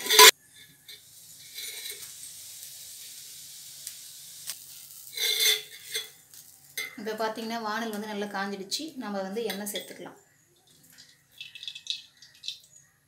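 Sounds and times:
pan clatter: 0:00.0 - 0:02.2, 0:05.0 - 0:07.0
water sizzling in hot pan: 0:00.0 - 0:09.9, 0:10.7 - 0:13.0.

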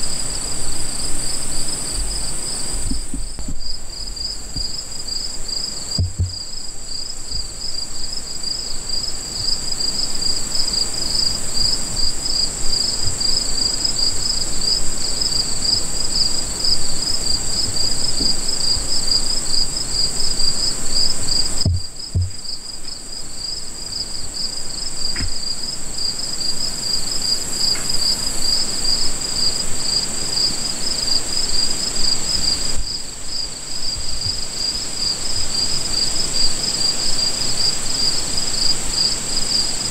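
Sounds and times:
crickets trilling: 0:00.0 - 0:39.9
soft low knocks: 0:02.8 - 0:04.8, 0:05.9 - 0:06.7, 0:21.6 - 0:22.6.

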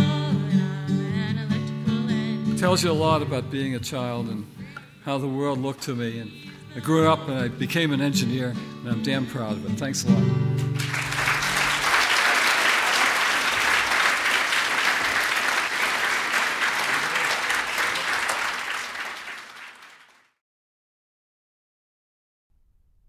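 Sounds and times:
audience applauding: 0:10.7 - 0:20.4.

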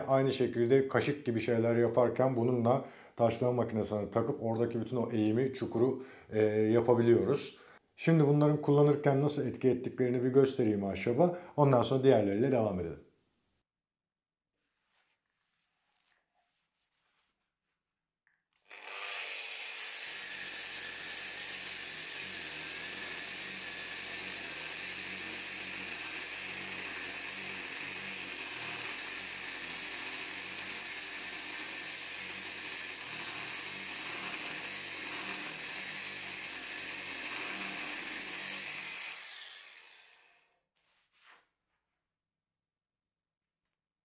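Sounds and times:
angle grinder grinding wood: 0:18.6 - 0:40.5
grinder spinning down: 0:18.7 - 0:40.5.

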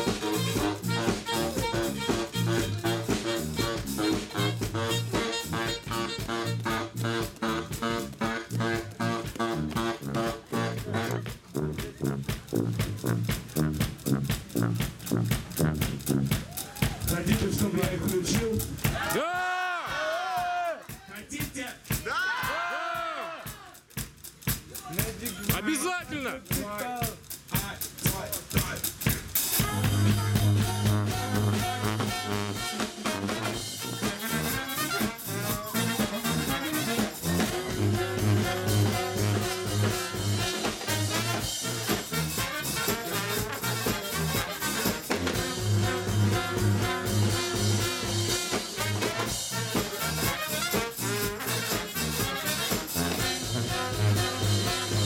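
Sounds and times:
sousaphone bass line: 0:00.0 - 0:19.0, 0:29.6 - 0:32.8, 0:33.4 - 0:42.2, 0:45.1 - 0:49.1, 0:53.1 - 0:55.0
brass band playing ska: 0:00.0 - 0:55.0.

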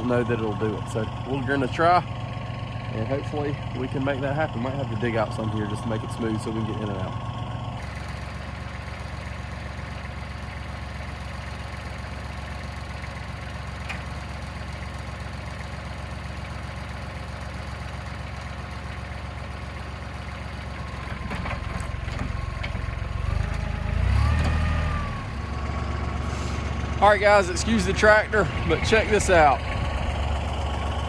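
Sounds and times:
tractor diesel engine running: 0:00.0 - 0:31.0.

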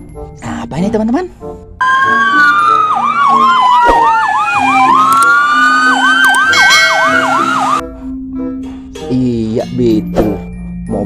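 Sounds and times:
police siren wailing and yelping: 0:01.8 - 0:07.8.

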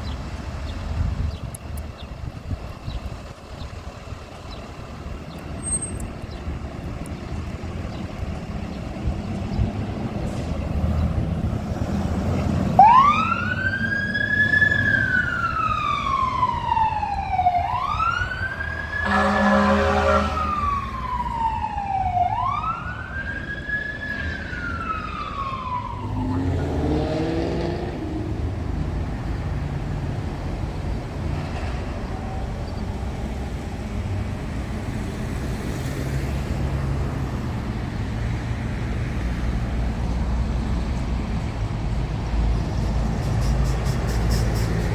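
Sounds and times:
engine and traffic rumble: 0:00.0 - 0:44.9
ambulance siren wailing: 0:12.7 - 0:27.0
horn blast: 0:19.0 - 0:20.6.

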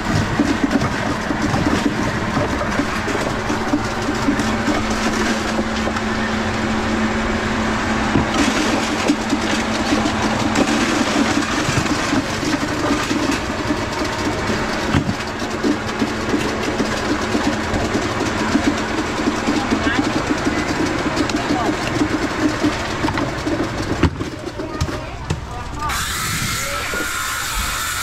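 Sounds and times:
busy clatter: 0:00.0 - 0:06.8, 0:08.0 - 0:28.0
motor droning: 0:25.7 - 0:28.0.

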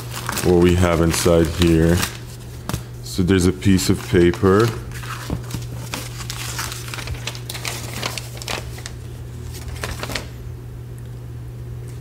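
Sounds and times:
paper rustling and crinkling: 0:00.0 - 0:03.0, 0:03.6 - 0:10.4
low steady hum: 0:00.0 - 0:12.0.

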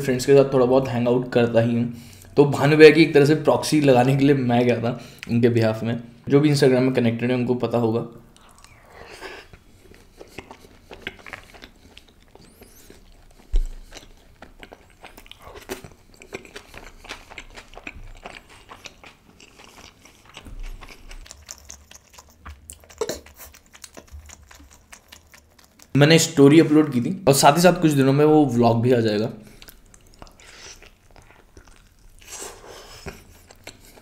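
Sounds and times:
chewing with mouth clicks: 0:08.3 - 0:26.0, 0:29.4 - 0:34.0.

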